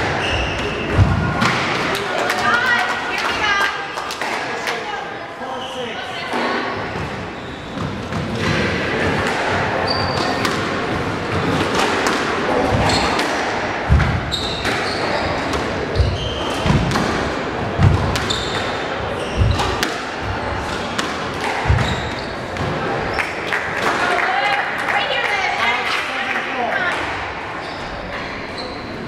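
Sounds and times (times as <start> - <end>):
squash ball hitting rackets and walls: 0.0 - 2.4, 6.3 - 24.1
shoes squeaking on wooden floor: 6.9 - 8.5, 12.6 - 13.2, 14.0 - 16.9, 17.8 - 19.8, 21.6 - 22.6.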